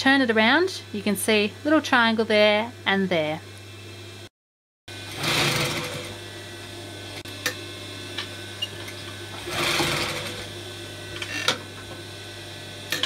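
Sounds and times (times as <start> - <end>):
sewing machine motor humming: 5.0 - 6.3, 9.3 - 11.6
sewing machine stitching: 5.1 - 6.2, 9.4 - 10.5.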